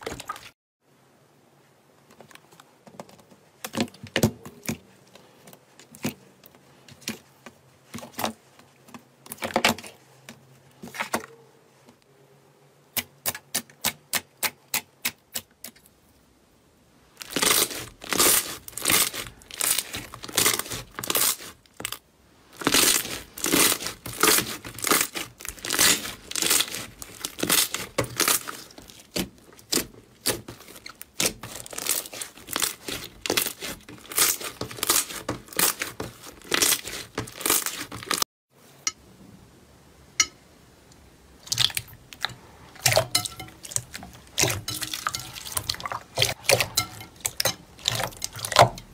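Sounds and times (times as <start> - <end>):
slime crackling while kneaded: 17.2 - 38.2.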